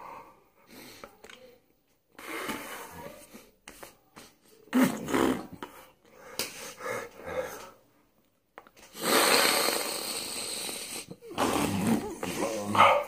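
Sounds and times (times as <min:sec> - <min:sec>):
long hissing breath: 0:09.0 - 0:11.2.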